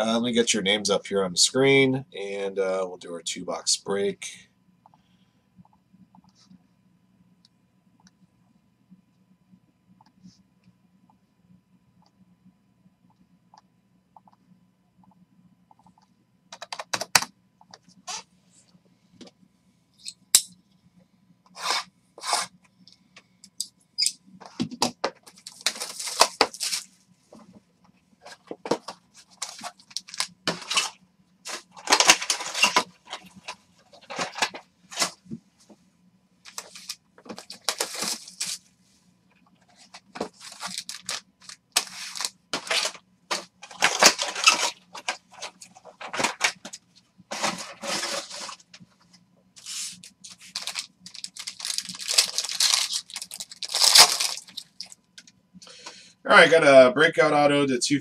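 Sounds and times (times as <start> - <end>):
foil crinkling and tearing: 25.3 - 26.9, 29.3 - 35.1, 36.5 - 38.6, 40.2 - 46.6, 49.6 - 55.0
cardboard rustling: 28.2 - 35.4, 39.7 - 48.7, 49.6 - 54.6.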